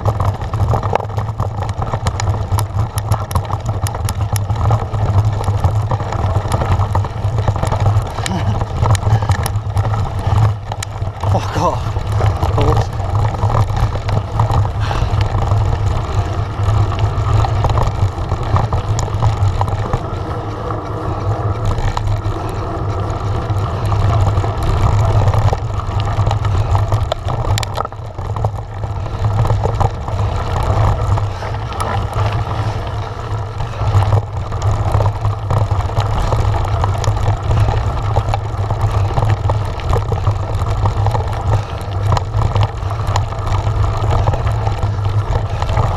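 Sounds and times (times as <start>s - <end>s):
bike rattling and knocking: 0.0s - 45.9s
wind rumble on microphone: 0.0s - 45.9s.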